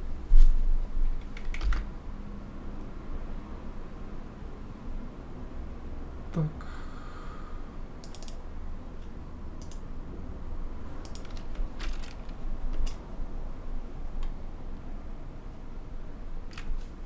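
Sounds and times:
steady low hum: 0.0 - 17.0
computer mouse clicks: 8.0 - 8.4, 9.0 - 9.9, 11.0 - 13.0.

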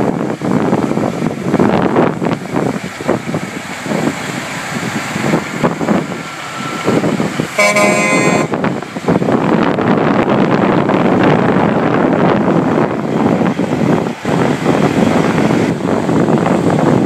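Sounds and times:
trucks rolling by: 0.0 - 17.0
wind noise: 0.0 - 17.0
truck air horn blast: 7.6 - 8.7.

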